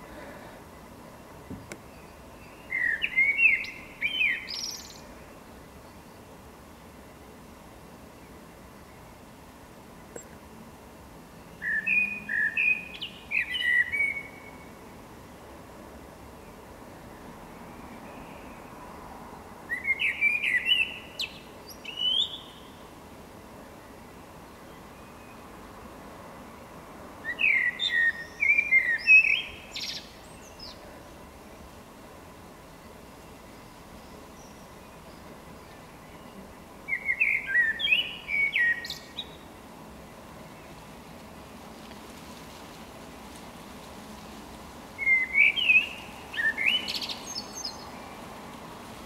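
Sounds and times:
blackbird singing: 0:01.4 - 0:06.2, 0:11.5 - 0:14.7, 0:19.7 - 0:22.8, 0:27.2 - 0:30.8, 0:34.0 - 0:39.5, 0:45.0 - 0:48.2.

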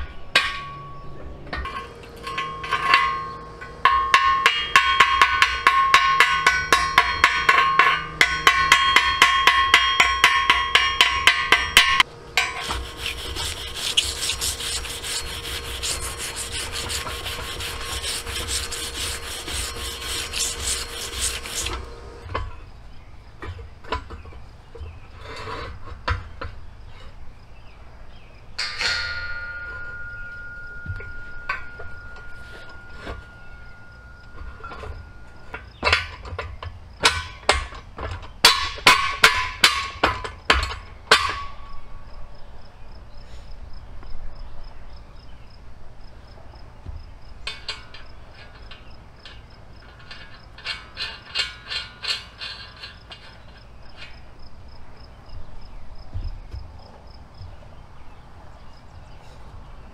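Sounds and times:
metal beam clanking: 0:00.0 - 0:22.7, 0:28.6 - 0:42.0, 0:47.4 - 0:54.4
ringing metal tone: 0:00.0 - 0:22.7, 0:28.5 - 0:37.6, 0:38.4 - 0:42.2
sharp metal knocks: 0:00.0 - 0:22.7, 0:28.6 - 0:41.9, 0:46.8 - 0:54.5.

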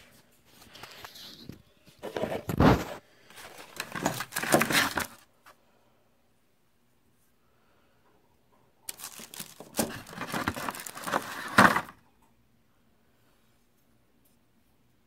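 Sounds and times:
rustling and scraping on workbench: 0:00.0 - 0:05.2, 0:09.4 - 0:12.0.

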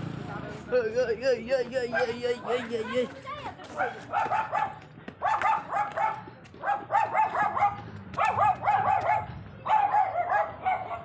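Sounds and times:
dog barking: 0:01.9 - 0:02.2, 0:03.7 - 0:11.0.

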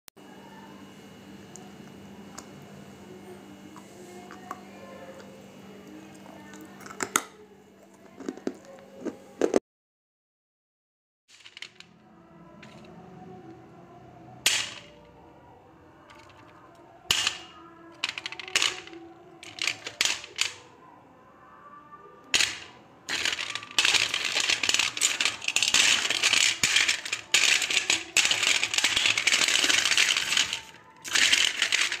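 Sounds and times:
pieces rattling in shaken metal plate: 0:11.3 - 0:11.9, 0:16.1 - 0:16.5, 0:17.1 - 0:20.6, 0:22.3 - 0:32.0
clay chunks clinking on metal plate: 0:17.1 - 0:20.6, 0:22.4 - 0:32.0.

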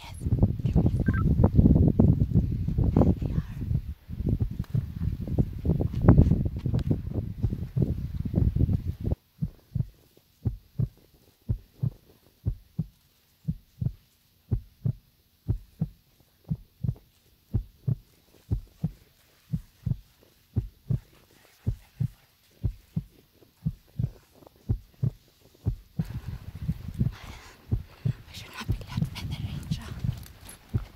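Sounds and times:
footsteps on dry earth: 0:04.4 - 0:09.0, 0:17.6 - 0:30.9.

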